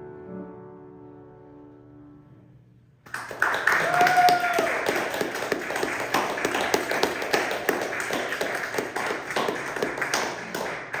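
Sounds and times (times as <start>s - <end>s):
audience applauding: 3.1s - 11.0s
close hand claps: 3.1s - 11.0s.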